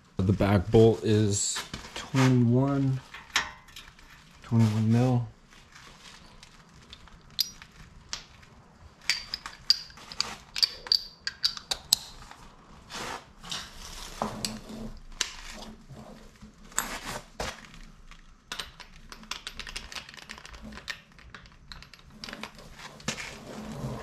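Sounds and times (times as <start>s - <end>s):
metal hand tools clinking: 7.3s - 7.7s.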